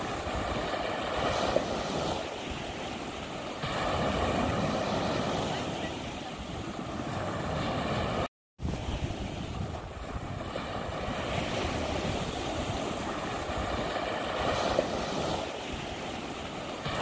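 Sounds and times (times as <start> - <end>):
waves washing on shore: 0.0 - 17.0
wind buffeting microphone: 3.6 - 17.0.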